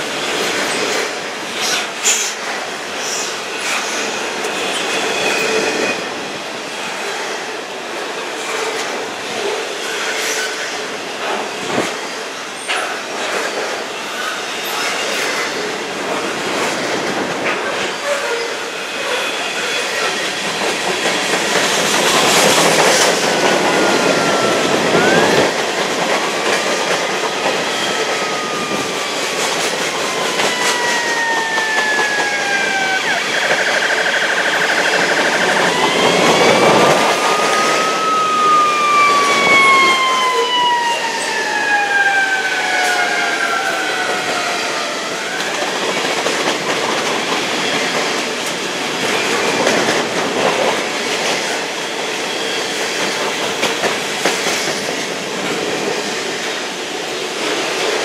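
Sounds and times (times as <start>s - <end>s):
train wheels rumbling on rails: 0.0s - 58.0s
high wheel squeals: 23.2s - 25.5s, 27.2s - 40.6s.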